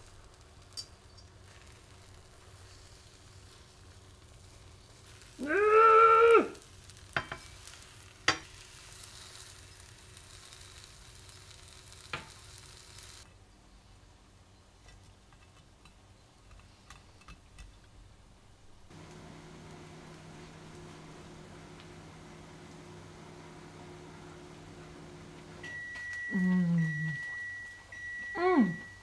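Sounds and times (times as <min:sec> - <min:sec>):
omelette sizzling in frying pan: 0:00.0 - 0:13.3, 0:18.9 - 0:26.1
utensils tapping on pan: 0:07.1 - 0:07.6, 0:08.2 - 0:08.6, 0:12.0 - 0:12.4.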